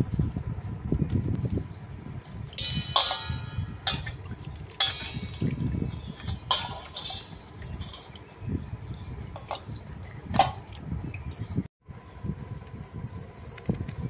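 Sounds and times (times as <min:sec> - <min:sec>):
water splashing in metal bowl: 0:02.2 - 0:11.5.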